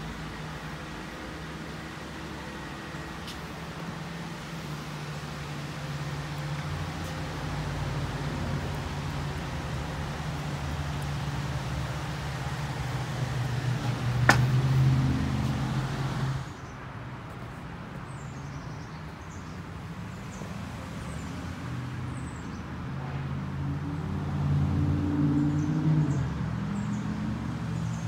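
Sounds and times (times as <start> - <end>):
road traffic drone: 0.0 - 28.0
small birds chirping: 17.9 - 21.4.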